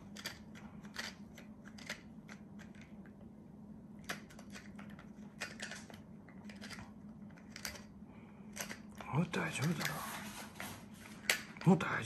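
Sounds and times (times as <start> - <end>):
pepper grinder crackly clicking: 0.0 - 3.1, 4.0 - 7.9, 8.5 - 10.0
faint low hum: 0.0 - 12.0.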